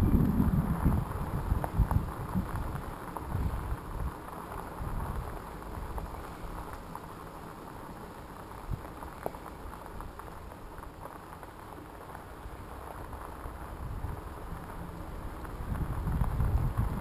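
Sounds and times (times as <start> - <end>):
bicycle tyres rolling on gravel: 0.0 - 17.0.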